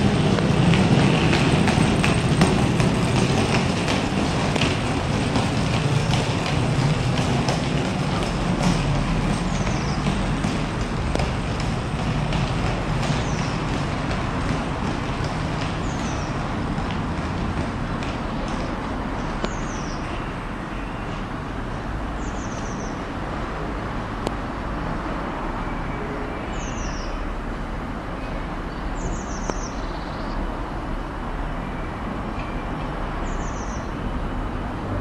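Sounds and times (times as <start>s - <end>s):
locomotive engine drone: 0.0s - 20.7s.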